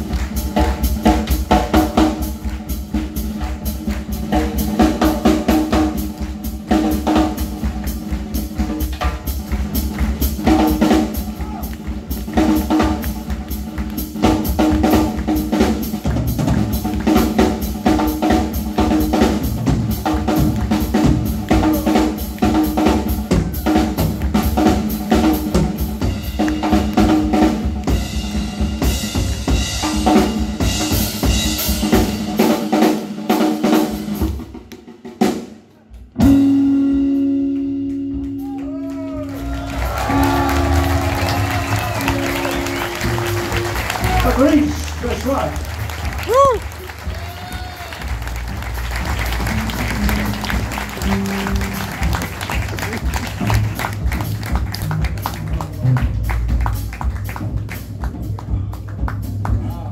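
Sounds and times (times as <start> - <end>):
drum kit: 0.0 - 59.9
small band playing fast beat: 0.0 - 59.9.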